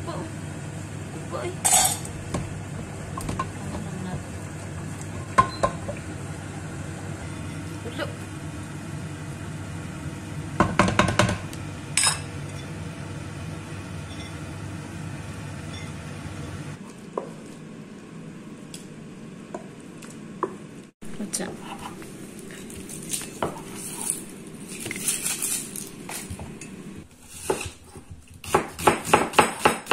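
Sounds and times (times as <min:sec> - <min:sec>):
wooden spoon scraping a pot: 0:21.4 - 0:25.8.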